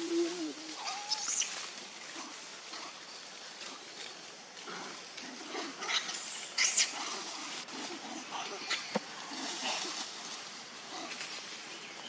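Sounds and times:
animal calls: 0.0 - 3.0, 4.7 - 10.1
steady background noise: 0.0 - 12.0.

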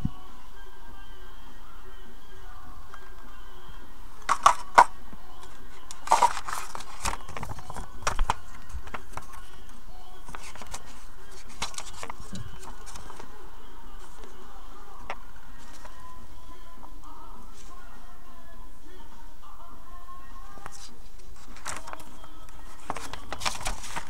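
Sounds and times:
plastic packaging crackling: 4.2 - 9.7, 10.3 - 13.3, 20.6 - 24.0
paper leaflet rustling: 4.2 - 16.1, 20.5 - 24.0.

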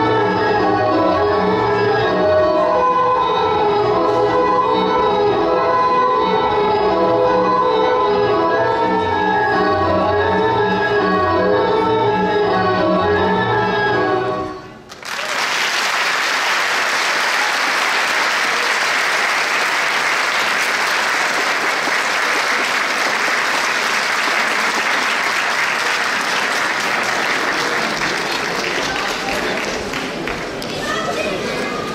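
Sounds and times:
audience applauding: 14.9 - 31.9.

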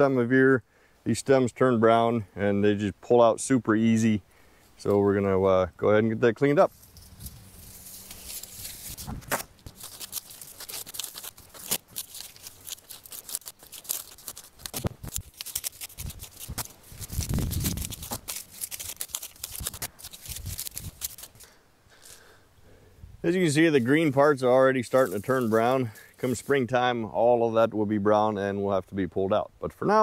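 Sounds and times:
dry stems rustling and snapping: 6.7 - 22.2, 24.4 - 26.5.

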